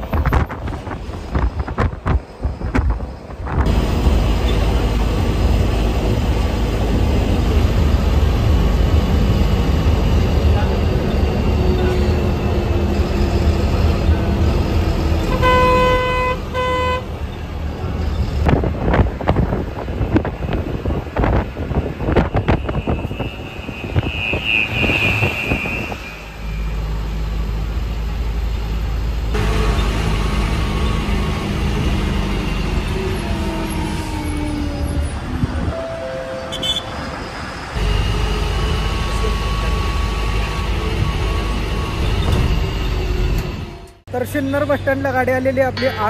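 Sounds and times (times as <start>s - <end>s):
bus engine running: 0.0s - 24.6s, 25.2s - 46.0s
road noise: 0.0s - 46.0s
vehicle horn honks: 15.3s - 17.1s, 22.3s - 26.4s, 35.8s - 37.0s.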